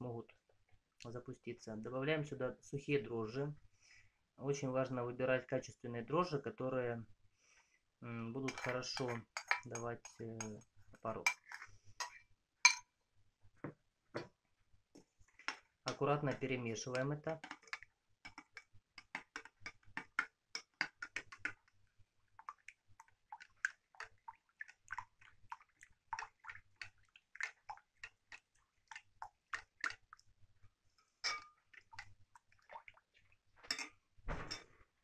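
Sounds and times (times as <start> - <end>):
spoon clinking in a ceramic bowl: 8.5 - 10.6, 11.2 - 12.8, 31.2 - 31.6, 33.7 - 34.6.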